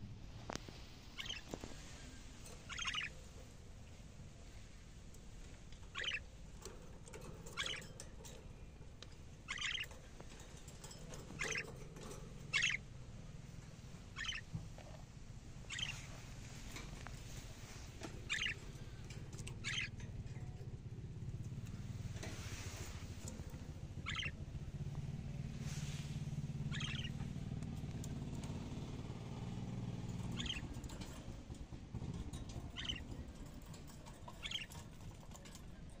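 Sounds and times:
budgerigars chirping: 1.1s - 1.6s, 2.5s - 3.3s, 5.8s - 6.3s, 7.3s - 8.2s, 9.0s - 10.5s, 11.1s - 12.9s, 14.0s - 14.5s, 15.6s - 16.2s, 17.4s - 20.0s, 22.6s - 24.4s, 26.6s - 27.3s, 30.2s - 31.2s, 32.3s - 35.5s.

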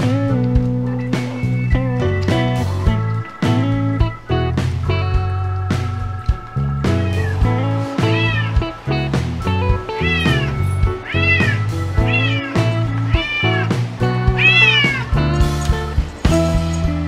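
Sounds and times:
background music: 0.0s - 17.0s
cat meowing: 6.9s - 8.7s, 10.0s - 15.3s.

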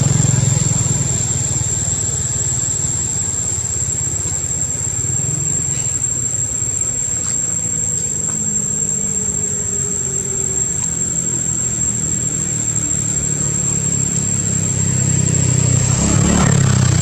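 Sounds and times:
low engine drone: 0.0s - 17.0s
thin high-pitched whine: 0.0s - 17.0s.

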